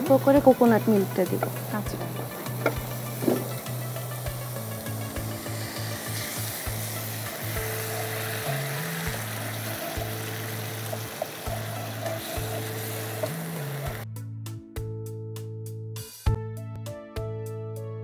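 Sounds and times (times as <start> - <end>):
masala sizzling in a pan: 0.0 - 14.0
soft background music: 0.0 - 18.0
wooden spatula scraping a pan: 2.6 - 3.7.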